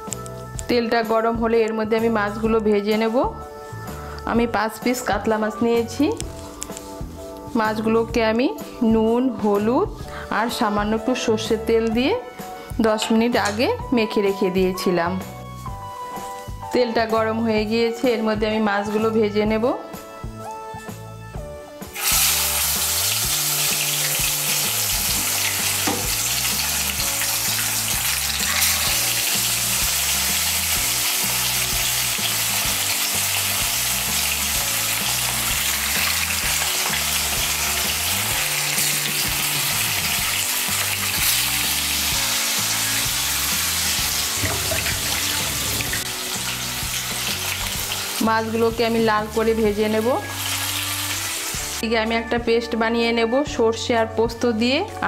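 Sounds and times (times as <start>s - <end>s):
fish sizzling in hot oil: 21.8s - 51.8s.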